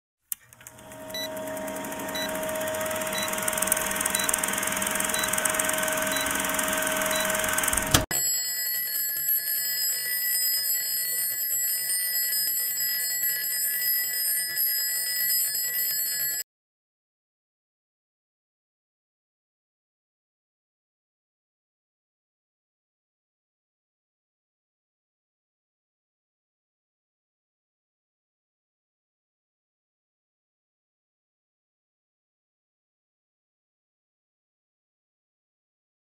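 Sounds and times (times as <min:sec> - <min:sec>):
film projector hiss and crackle: 0:00.5 - 0:08.0
alarm clock bell ringing: 0:01.1 - 0:16.4.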